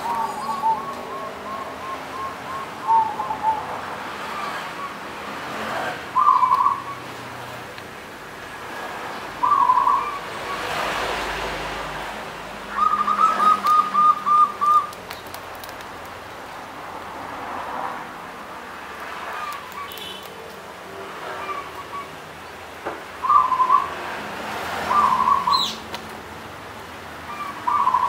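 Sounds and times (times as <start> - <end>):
dove cooing: 0.0 - 4.8, 6.2 - 6.9, 9.4 - 10.3, 12.7 - 15.0, 23.2 - 24.0, 24.9 - 25.8, 27.3 - 28.0.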